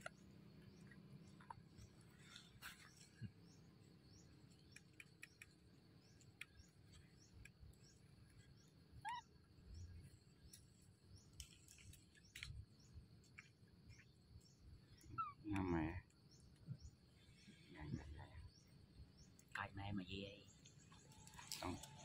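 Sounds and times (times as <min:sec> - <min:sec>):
small clicks: 0:04.5 - 0:08.0, 0:10.4 - 0:12.6.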